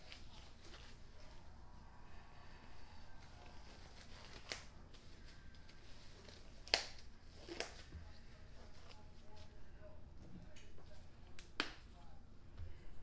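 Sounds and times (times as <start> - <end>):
rubber gloves rustling: 0.0 - 1.6, 3.0 - 9.6
glove cuffs snapping: 4.3 - 4.7, 6.6 - 7.9, 11.4 - 11.8.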